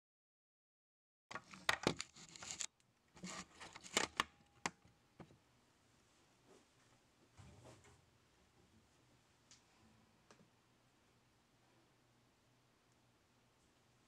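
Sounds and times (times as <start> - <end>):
rustling handling noise: 1.3 - 4.7.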